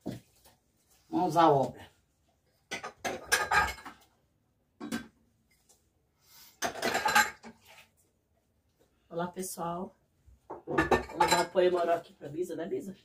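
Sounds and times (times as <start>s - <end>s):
dishes and pots clattering: 2.7s - 4.1s, 4.8s - 5.2s, 6.6s - 7.7s, 10.5s - 11.7s.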